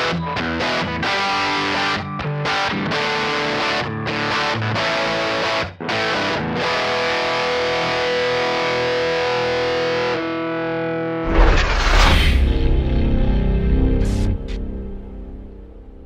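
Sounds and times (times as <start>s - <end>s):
distorted electric guitar music: 0.0s - 11.3s, 12.4s - 16.0s
loud deep sound: 11.3s - 16.0s.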